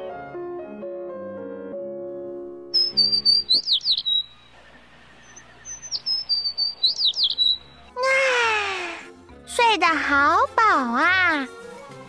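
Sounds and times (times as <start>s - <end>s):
soft music: 0.0s - 3.6s, 5.2s - 12.0s
birds twittering: 2.8s - 7.9s.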